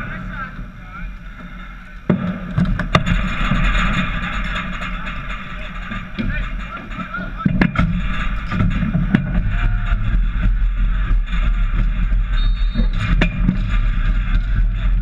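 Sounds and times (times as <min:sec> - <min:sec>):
low rumble: 0:00.0 - 0:15.0
hockey sticks and ball clacking: 0:01.4 - 0:15.0.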